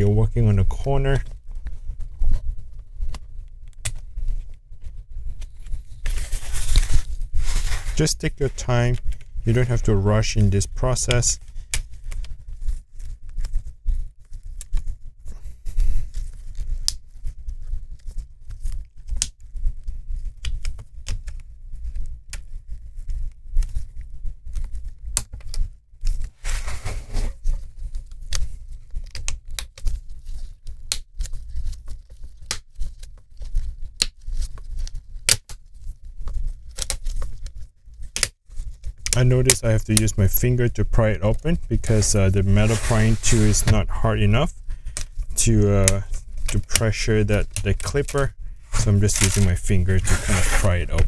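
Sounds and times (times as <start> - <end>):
plastic rubbing scrape: 4.2 - 11.4, 26.2 - 27.8, 38.6 - 51.0.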